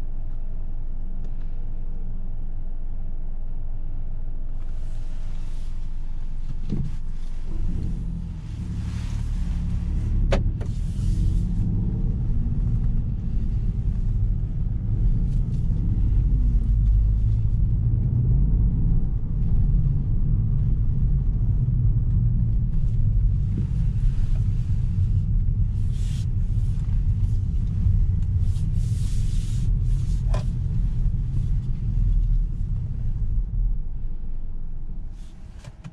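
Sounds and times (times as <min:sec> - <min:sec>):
car engine running: 0:00.0 - 0:35.9
low rumble of moving car: 0:00.0 - 0:35.9.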